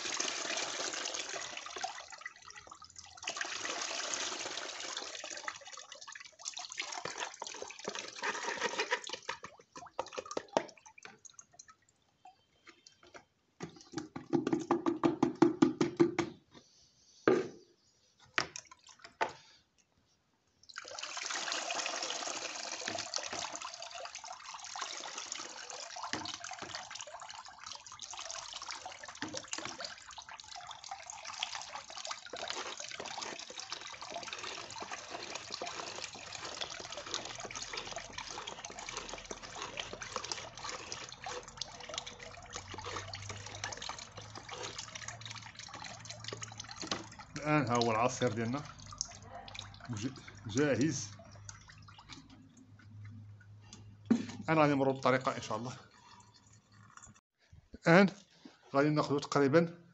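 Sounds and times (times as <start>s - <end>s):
liquid trickling through sieve: 0.0s - 14.0s, 20.6s - 57.2s
sieve rattling and knocking: 13.6s - 16.3s.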